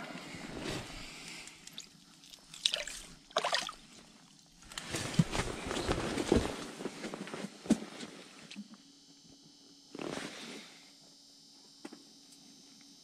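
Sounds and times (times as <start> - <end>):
clothing rustle: 4.7 - 8.3.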